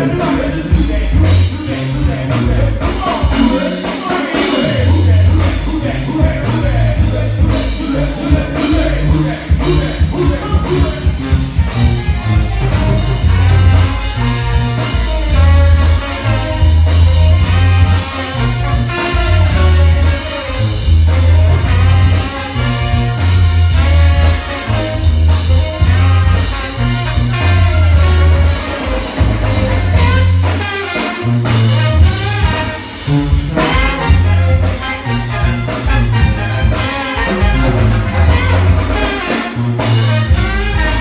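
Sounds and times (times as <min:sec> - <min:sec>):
person singing: 0:00.0 - 0:11.3
sousaphone bass line: 0:00.0 - 0:30.7, 0:31.4 - 0:41.0
brass band playing: 0:00.0 - 0:41.0
drum kit: 0:00.0 - 0:41.0.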